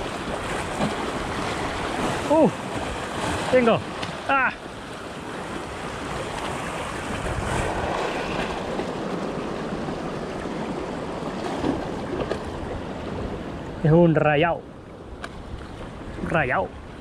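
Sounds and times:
surf on rocky shore: 0:00.0 - 0:17.0
wind buffeting microphone: 0:05.2 - 0:13.8.

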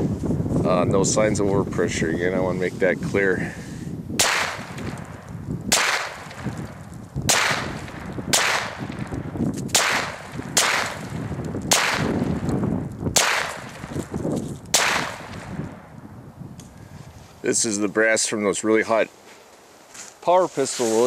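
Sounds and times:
gunshots with echo: 0:04.2 - 0:04.9, 0:05.7 - 0:06.5, 0:07.3 - 0:09.1, 0:09.7 - 0:12.4, 0:13.2 - 0:13.9, 0:14.7 - 0:15.6.

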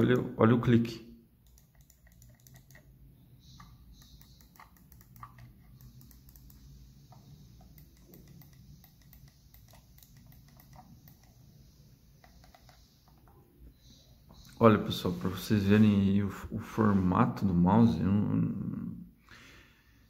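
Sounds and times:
computer mouse clicking: 0:01.4 - 0:13.4.

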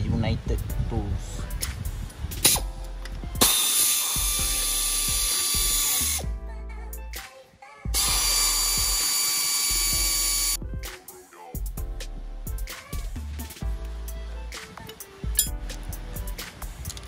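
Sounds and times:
pneumatic air ratchet whirring: 0:02.3 - 0:02.7, 0:03.4 - 0:06.2, 0:08.0 - 0:10.6.

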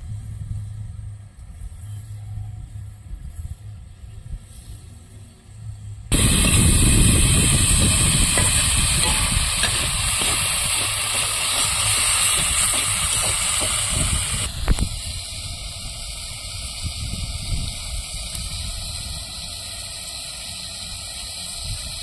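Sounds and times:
food sizzling in oil: 0:06.1 - 0:15.2.

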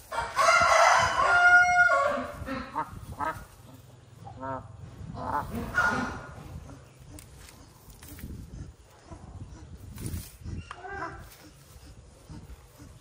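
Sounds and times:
rooster crowing: 0:00.1 - 0:02.4
chicken clucking: 0:05.2 - 0:13.0.

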